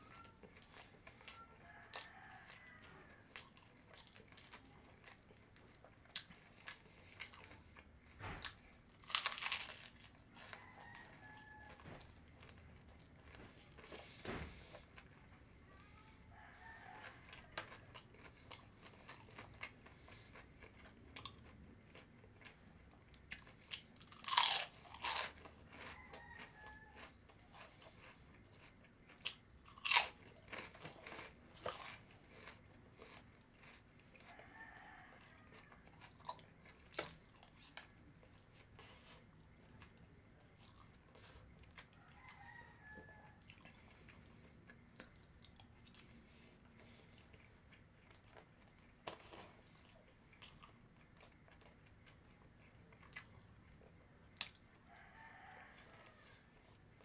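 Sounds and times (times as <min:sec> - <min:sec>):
person chewing crispy chicken: 0:00.0 - 0:57.0
loud crunching bites: 0:08.4 - 0:10.1, 0:24.0 - 0:26.0, 0:27.8 - 0:34.1.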